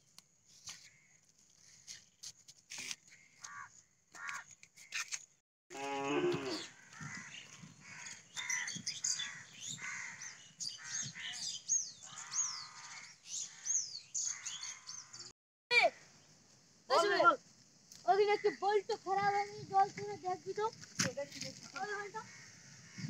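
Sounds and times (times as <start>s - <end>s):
crows cawing: 3.4s - 4.6s, 6.3s - 15.2s, 21.9s - 23.0s
small birds chirping: 6.4s - 15.3s.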